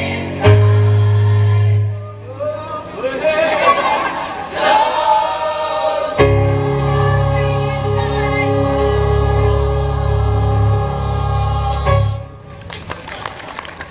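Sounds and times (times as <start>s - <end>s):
choir singing: 0.0s - 2.3s, 3.3s - 12.5s
deep steady bass: 6.2s - 12.5s.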